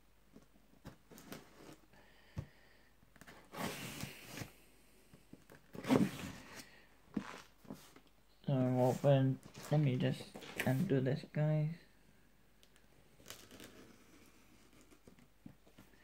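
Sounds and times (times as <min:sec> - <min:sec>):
cardboard scraping and rustling: 0:05.6 - 0:08.0.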